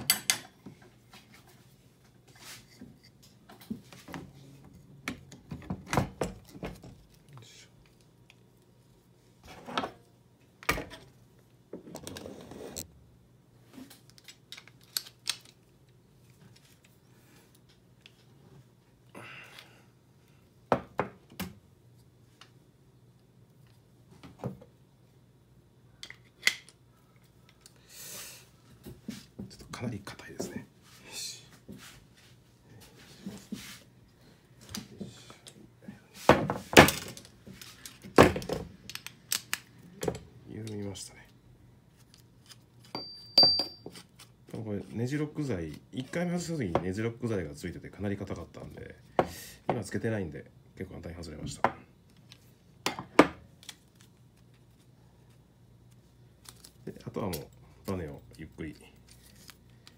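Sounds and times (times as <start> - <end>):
rustling scrape: 12.1 - 12.9.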